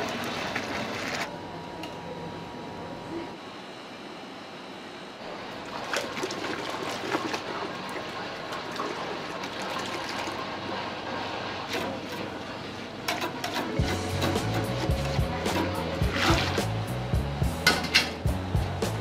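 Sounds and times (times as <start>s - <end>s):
whisk stirring pot: 13.1s - 16.7s.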